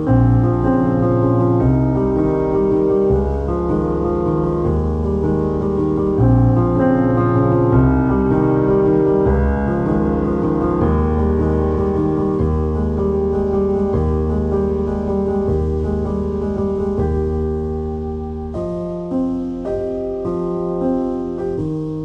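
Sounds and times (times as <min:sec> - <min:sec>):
piano music: 0:00.0 - 0:22.0.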